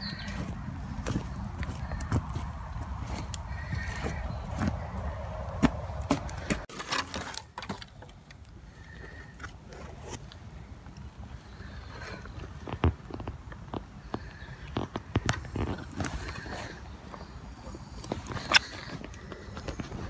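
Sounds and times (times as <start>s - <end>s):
wind rumbling on microphone: 0.0s - 6.7s
clicks and knocks in undergrowth: 0.0s - 11.0s, 11.6s - 20.0s
twigs snapping: 0.2s - 8.6s.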